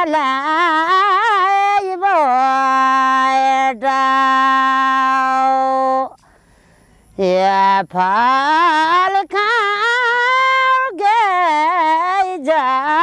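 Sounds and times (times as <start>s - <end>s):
woman singing unaccompanied: 0.0s - 6.2s, 7.1s - 13.0s.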